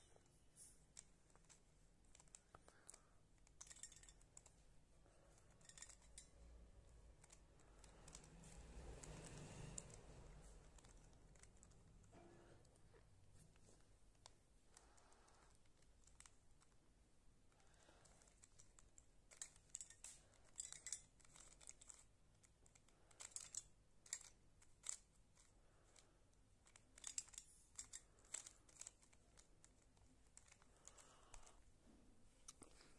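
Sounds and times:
plastic puzzle clicking: 0:00.9 - 0:04.5, 0:05.4 - 0:06.4, 0:07.1 - 0:08.4, 0:10.6 - 0:11.8, 0:18.0 - 0:31.6.

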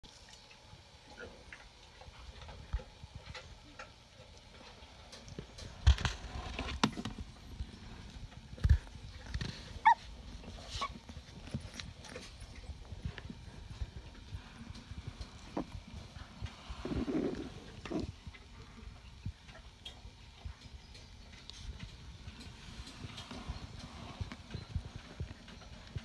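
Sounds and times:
puppy squeaking: 0:09.8 - 0:10.0.

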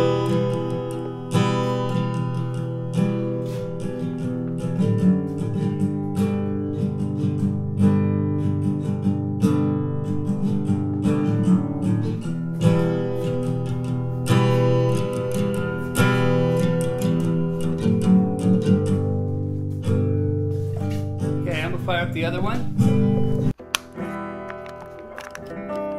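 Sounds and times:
acoustic guitar music: 0:00.0 - 0:25.9.

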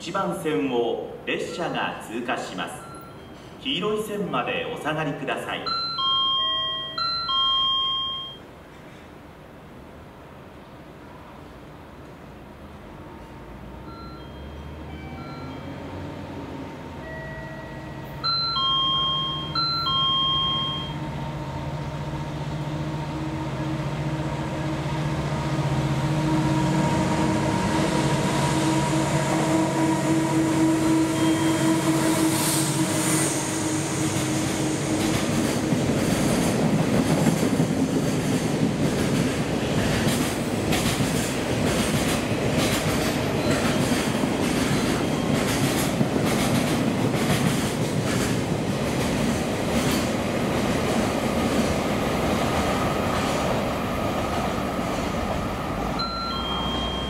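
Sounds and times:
diesel locomotive engine drone: 0:05.6 - 0:57.0
train wheels clickety-clack: 0:30.8 - 0:56.0.

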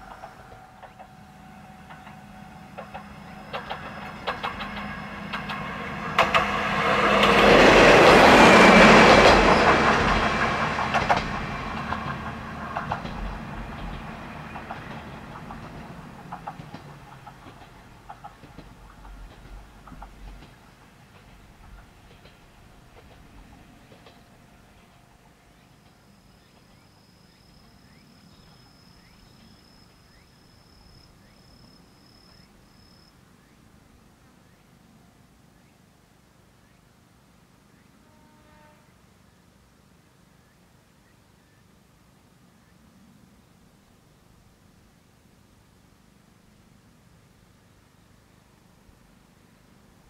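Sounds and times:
wheels clacking over rail joints: 0:00.0 - 0:31.4
diesel railcar running: 0:00.0 - 0:35.4
insects trilling: 0:25.9 - 0:33.1.

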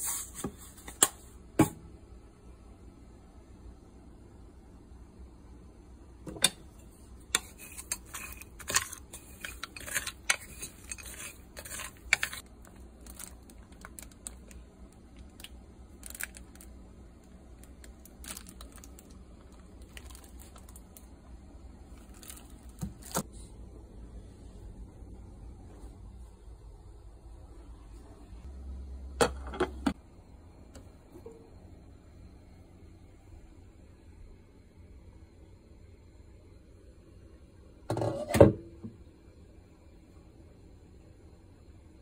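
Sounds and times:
plastic wrapping crinkling: 0:11.6 - 0:14.6, 0:15.2 - 0:16.7, 0:17.6 - 0:21.0.

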